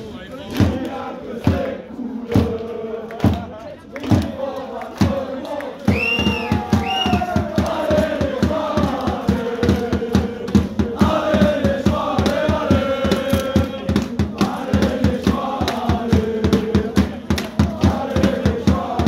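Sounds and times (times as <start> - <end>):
crowd chanting: 0.2 - 19.0
fast steady drum beat: 4.1 - 4.4, 5.9 - 19.0.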